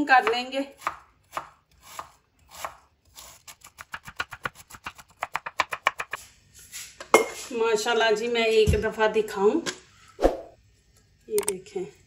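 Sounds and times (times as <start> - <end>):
knife chopping cabbage on wooden board: 0.2 - 6.2.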